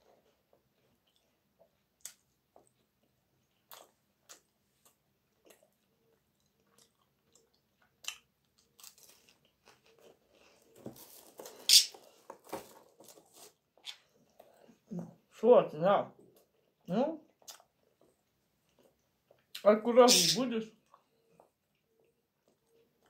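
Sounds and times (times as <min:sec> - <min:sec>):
person crunching a cracker: 0:03.5 - 0:11.8
crackling and rustling: 0:08.8 - 0:14.8.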